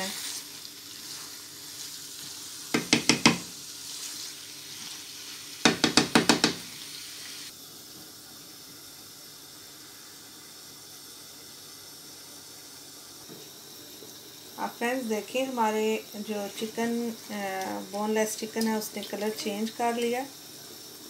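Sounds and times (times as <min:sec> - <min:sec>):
chicken sizzling in a frying pan: 0:00.0 - 0:21.0
wooden spatula knocking on pan: 0:02.7 - 0:03.5, 0:05.6 - 0:06.6.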